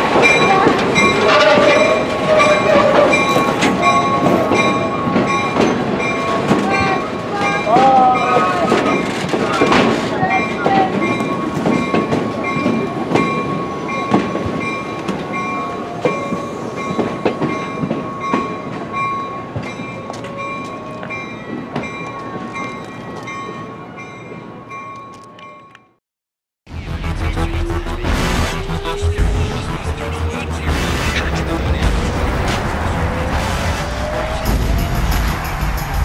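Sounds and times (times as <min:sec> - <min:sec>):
wheels clicking over rail joints: 0:00.0 - 0:23.6.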